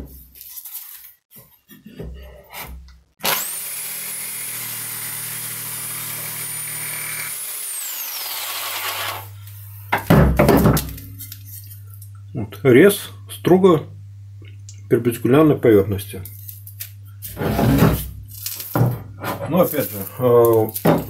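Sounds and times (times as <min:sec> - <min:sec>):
electric jigsaw cutting wood: 0:03.2 - 0:09.4.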